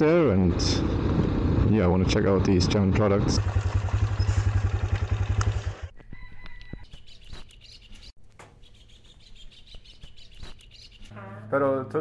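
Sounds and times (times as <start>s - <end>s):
motorcycle engine cutting off: 0.8s - 6.0s
birds chirping: 4.1s - 4.5s, 5.9s - 11.5s.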